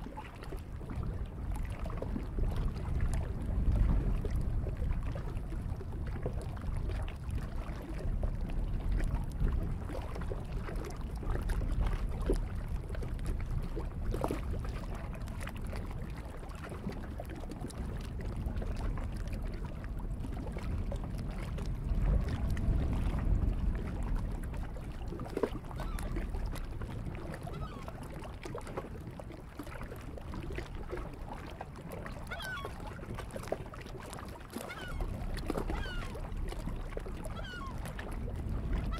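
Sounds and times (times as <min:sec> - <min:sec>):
waves lapping on rocky shore: 0:09.4 - 0:38.9
gusting wind rumble: 0:17.8 - 0:28.0, 0:34.9 - 0:38.9
faint bird calls: 0:32.3 - 0:32.8, 0:35.7 - 0:36.2, 0:37.4 - 0:37.8.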